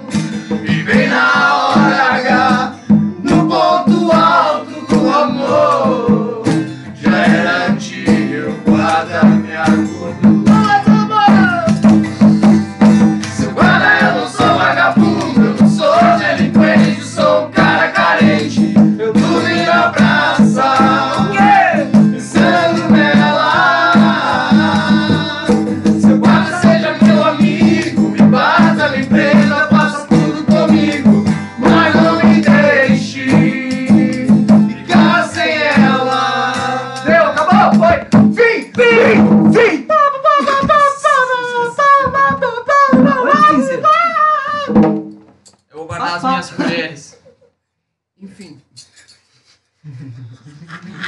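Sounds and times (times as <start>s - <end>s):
men singing together: 0.0s - 11.7s, 13.2s - 38.1s
rattling percussion beat: 0.0s - 39.7s, 44.7s - 45.5s
strummed acoustic guitar: 0.0s - 39.7s.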